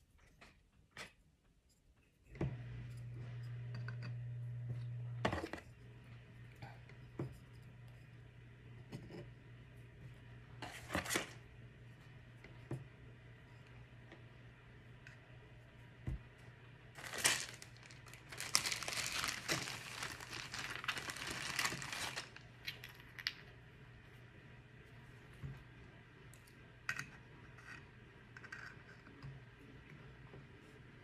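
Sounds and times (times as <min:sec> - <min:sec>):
rustling and crinkling: 0:10.6 - 0:11.4, 0:16.9 - 0:25.8.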